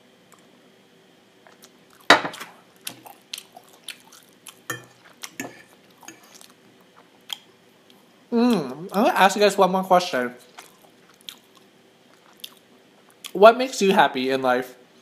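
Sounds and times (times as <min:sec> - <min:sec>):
cutlery clinking on a dish: 0:04.7 - 0:06.4.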